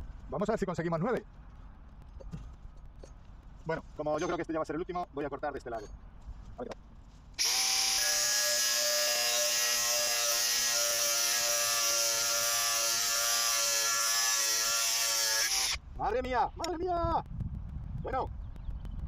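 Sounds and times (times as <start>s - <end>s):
angle grinder cutting steel: 7.4s - 15.8s.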